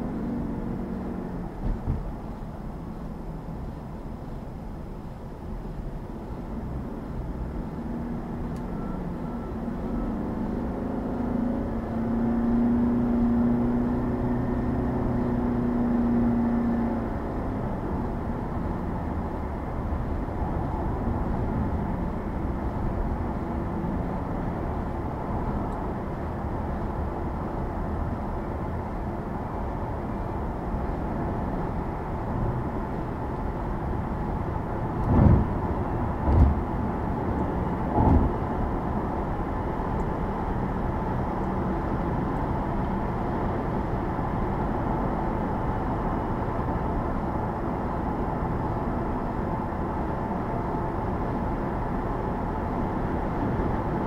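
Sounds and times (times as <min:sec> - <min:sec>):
road and tyre noise: 0:00.0 - 0:54.0
sharp thump: 0:35.1 - 0:35.6, 0:36.2 - 0:36.6.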